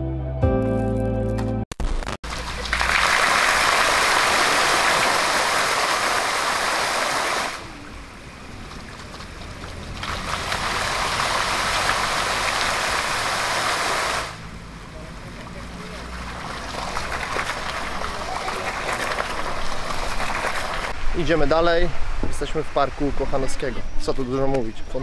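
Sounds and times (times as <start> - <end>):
fountain jets splashing: 2.2 - 21.0.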